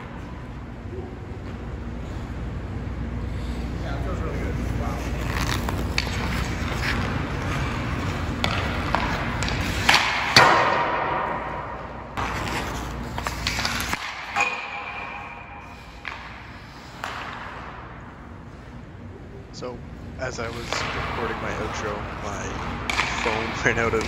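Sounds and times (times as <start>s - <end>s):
skates scraping on ice: 3.3s - 10.7s, 11.5s - 17.7s
hockey pucks cracking off stick: 5.2s - 17.7s, 22.6s - 24.0s.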